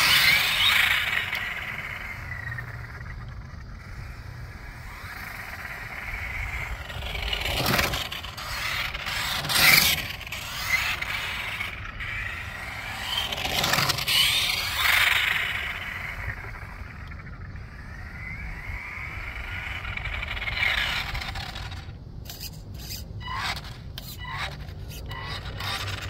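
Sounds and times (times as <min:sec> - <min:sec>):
toy truck motor whine: 0:00.0 - 0:26.0.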